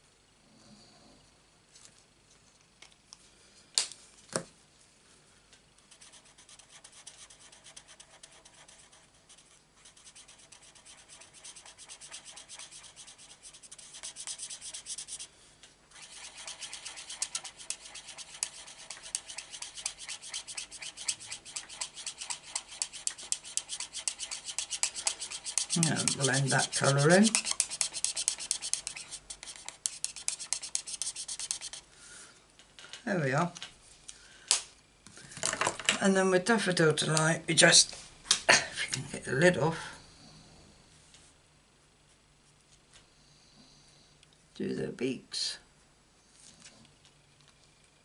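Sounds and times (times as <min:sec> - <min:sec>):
marker rubbing on cardstock: 0:05.9 - 0:15.3, 0:16.0 - 0:31.9.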